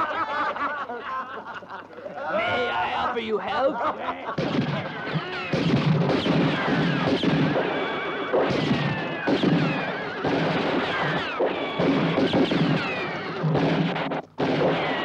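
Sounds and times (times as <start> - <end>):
horses whinnying: 4.4 - 14.1.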